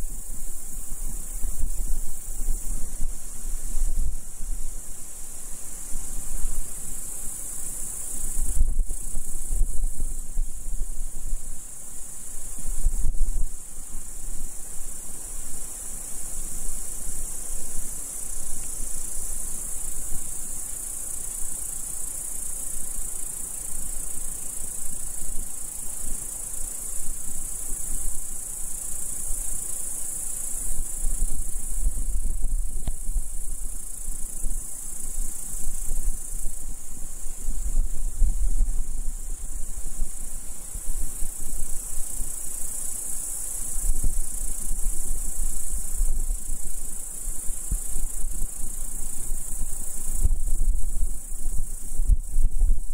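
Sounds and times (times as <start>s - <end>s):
wind rumble on microphone: 0.0s - 7.0s, 8.1s - 15.5s, 30.5s - 52.9s
insects chirring: 0.0s - 52.9s.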